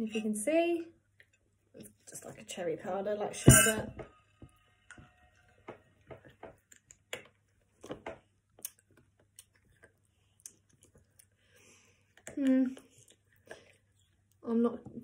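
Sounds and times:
lip smacks and clicks of eating: 6.6s - 14.4s.

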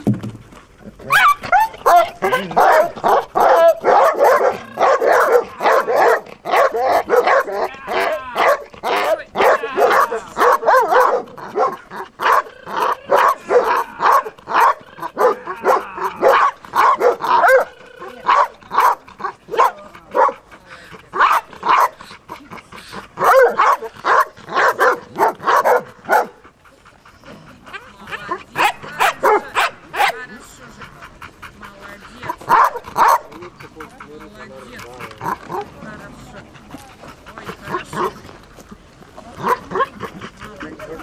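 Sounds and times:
dog barking rapidly: 1.1s - 20.4s, 21.1s - 22.0s, 23.2s - 26.4s, 28.6s - 30.2s, 32.2s - 33.4s, 39.4s - 40.0s.

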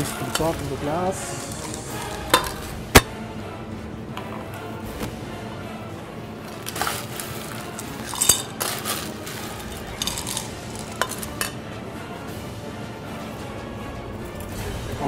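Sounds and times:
ice cubes clinking against glass: 6.6s - 11.6s.

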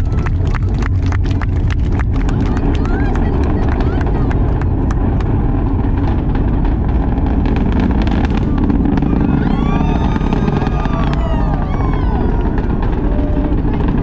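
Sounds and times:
crowd whooping and cheering: 0.0s - 4.0s, 8.3s - 14.0s
rocket engines rumbling and crackling: 0.0s - 14.0s.

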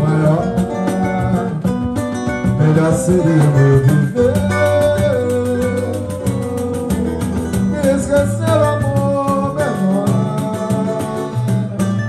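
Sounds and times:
cavaquinho strumming: 0.0s - 12.0s
hand drum beat: 0.0s - 12.0s
person singing: 2.6s - 12.0s.

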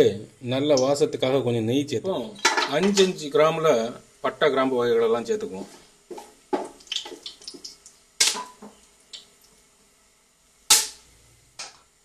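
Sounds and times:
spices sizzling in hot oil: 2.1s - 4.6s, 5.2s - 10.0s
wooden spatula knocking metal pot: 2.3s - 3.2s.

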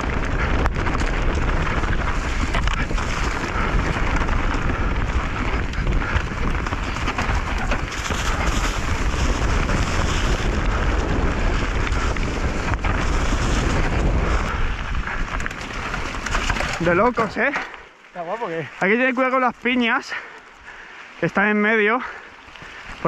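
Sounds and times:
wind rush on microphone: 0.0s - 17.5s
bike clattering and rattling: 0.0s - 21.0s.

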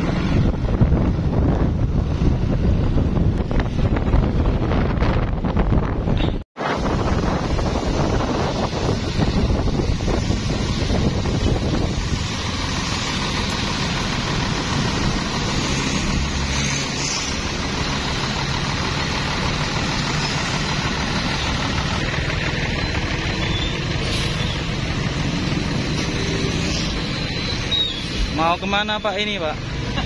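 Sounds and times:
heavy vehicle engine running: 0.0s - 30.0s
wind: 0.0s - 30.0s
tyres hissing on wet road: 6.6s - 30.0s.

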